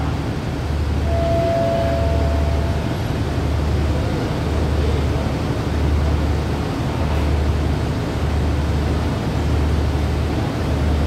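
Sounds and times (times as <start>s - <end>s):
diesel engines idling: 0.1s - 7.7s
faint high tone: 1.1s - 3.0s.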